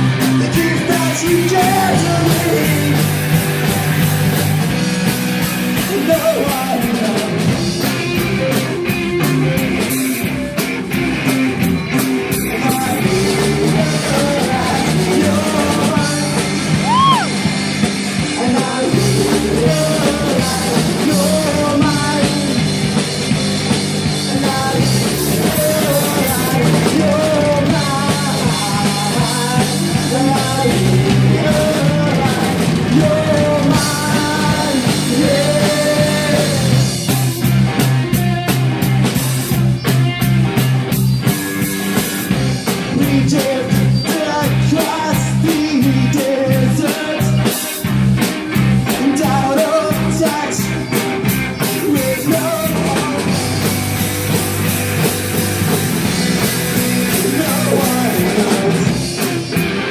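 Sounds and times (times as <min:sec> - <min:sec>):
man singing: 0:00.0 - 0:03.7, 0:05.8 - 0:09.6, 0:12.0 - 0:17.4, 0:18.2 - 0:22.8, 0:24.1 - 0:38.5, 0:42.6 - 0:47.9, 0:48.6 - 0:53.8, 0:56.7 - 0:59.9
drum kit: 0:00.0 - 0:59.9
electric guitars: 0:00.0 - 0:59.9.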